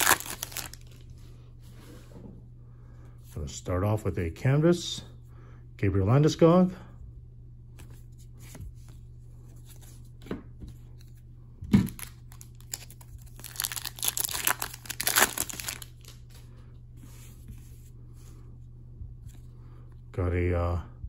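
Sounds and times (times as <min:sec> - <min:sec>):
foil wrapper crinkling and tearing: 0:00.0 - 0:01.0, 0:11.9 - 0:16.2.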